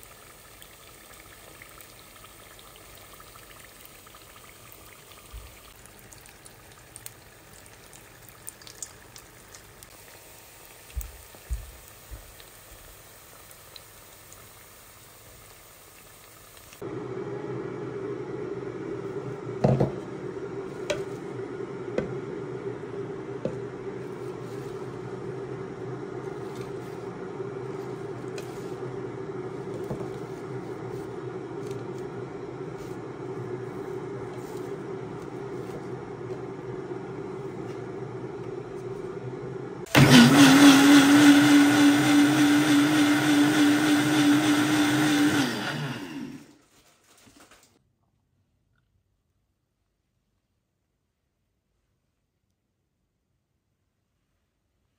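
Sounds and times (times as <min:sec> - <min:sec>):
blender motor running: 0:39.4 - 0:46.6.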